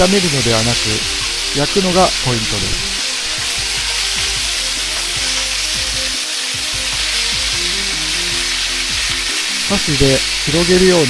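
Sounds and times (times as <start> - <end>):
meat sizzling in a wok: 0.0 - 11.0.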